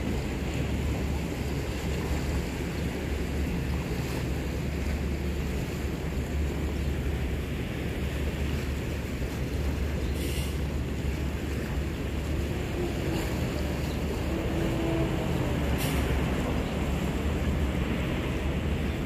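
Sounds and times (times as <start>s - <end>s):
waves washing against rocks: 0.0s - 19.0s.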